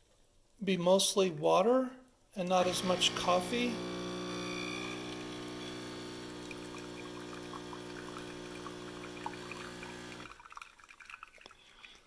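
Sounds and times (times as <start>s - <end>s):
espresso machine pump buzzing: 2.6s - 10.3s
coffee pouring into a mug: 2.6s - 12.0s.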